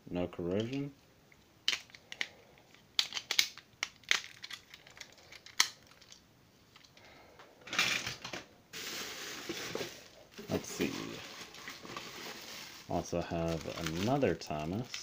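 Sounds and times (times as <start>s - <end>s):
rustling: 8.8s - 15.0s.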